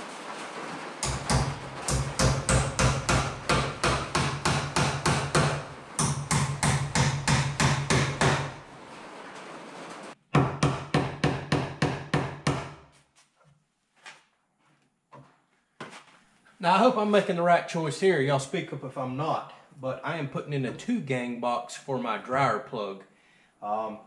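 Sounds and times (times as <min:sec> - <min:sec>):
hammer blows on nails: 0:01.0 - 0:08.7.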